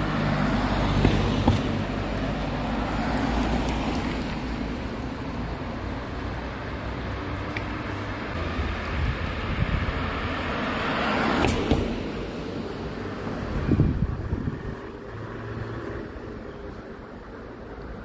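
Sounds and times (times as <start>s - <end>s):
car passing close by: 0.0s - 16.4s
passing traffic rumble: 0.0s - 18.0s.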